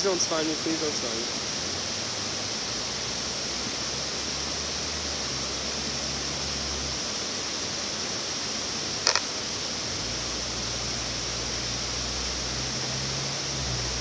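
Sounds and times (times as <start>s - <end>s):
water rushing over a dam: 0.0s - 14.0s
sharp double click: 9.0s - 9.3s.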